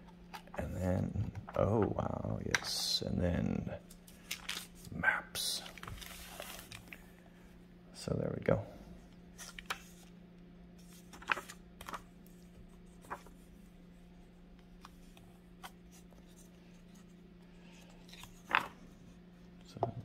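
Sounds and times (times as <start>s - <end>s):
faint steady hum: 0.0s - 20.0s
thin paper rustling: 4.1s - 4.9s, 5.6s - 7.0s, 9.4s - 10.1s, 10.8s - 13.7s, 17.8s - 18.9s.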